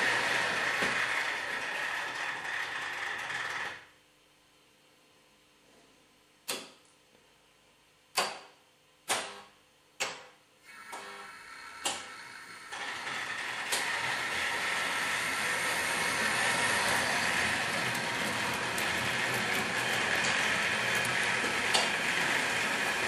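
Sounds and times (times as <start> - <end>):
model train running on track: 0.0 - 3.8, 10.7 - 23.0.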